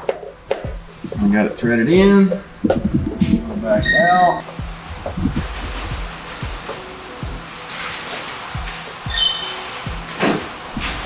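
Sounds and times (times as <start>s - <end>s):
background music: 0.0s - 11.0s
low drum beat: 0.6s - 7.5s.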